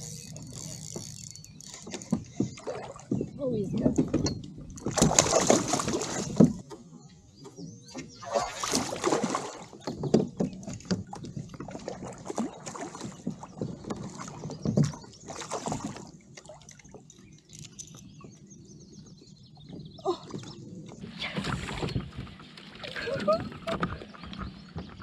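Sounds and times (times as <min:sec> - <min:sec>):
fishing gear clicks and knocks: 0:00.0 - 0:04.9, 0:17.0 - 0:18.5
fish splashing in water: 0:04.8 - 0:06.4, 0:08.2 - 0:09.8.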